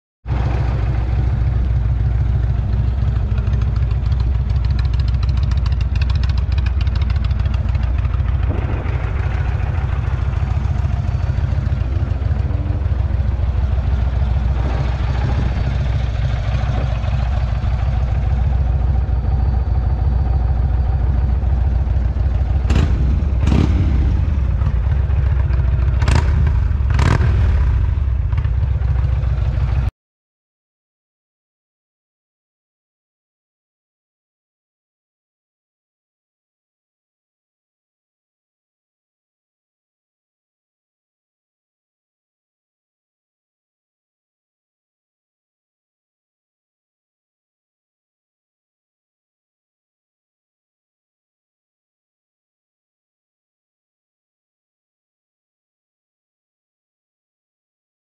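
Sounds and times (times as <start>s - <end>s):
motorcycle engine idling: 0.3s - 29.9s.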